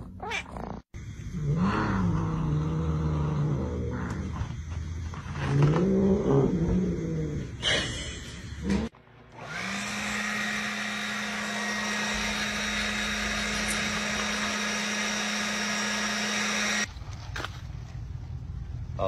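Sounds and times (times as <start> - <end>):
blower running: 8.2 - 16.9.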